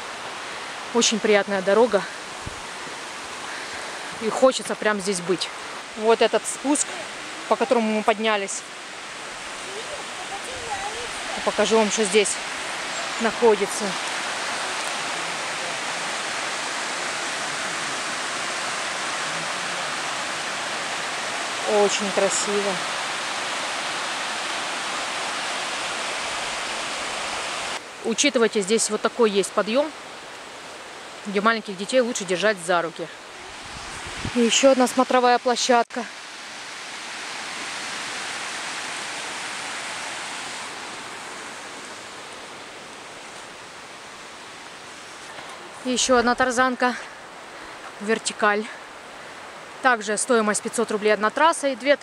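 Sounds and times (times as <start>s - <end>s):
river rushing over rocks: 0.0s - 28.9s, 29.9s - 52.0s.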